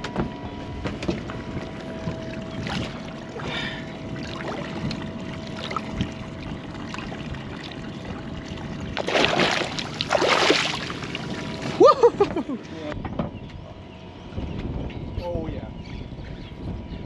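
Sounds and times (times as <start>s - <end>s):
water lapping against hull: 0.4s - 12.6s
fish splashing: 1.6s - 11.8s.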